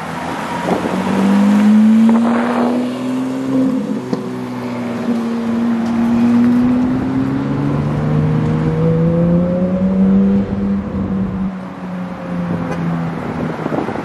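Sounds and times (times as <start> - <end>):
cars accelerating away: 0.0 - 14.0
wind buffeting microphone: 0.3 - 2.8, 12.5 - 14.0.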